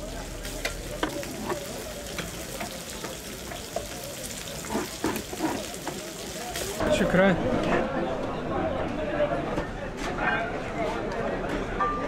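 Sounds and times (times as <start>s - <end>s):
meat sizzling over charcoal: 0.0s - 7.1s.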